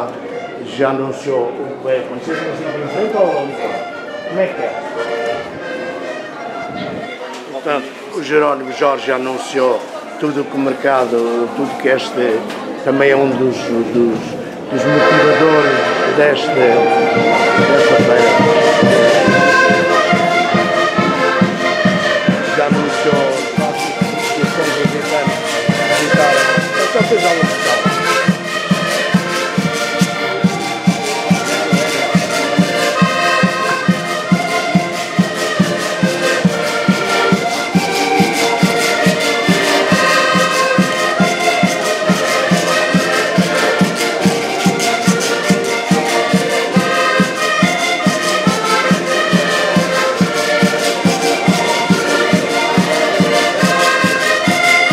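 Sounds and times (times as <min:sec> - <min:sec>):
accordions playing folk tune: 0:00.0 - 0:54.9
steady beat: 0:14.7 - 0:54.9.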